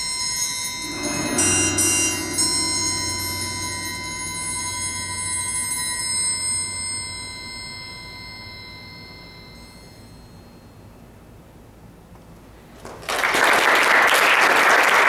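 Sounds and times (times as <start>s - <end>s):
triangles ringing: 0.0s - 11.1s.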